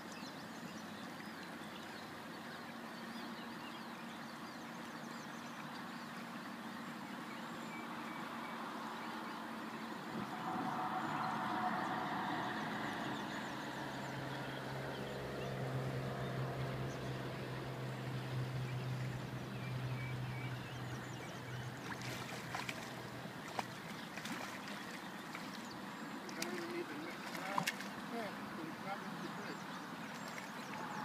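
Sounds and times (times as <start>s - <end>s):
river water rushing: 21.4s - 31.0s
fish splashing at surface: 21.8s - 25.6s, 26.3s - 28.1s.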